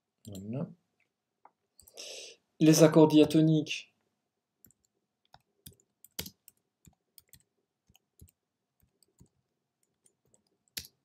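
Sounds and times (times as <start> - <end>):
computer keyboard typing: 4.6 - 11.0.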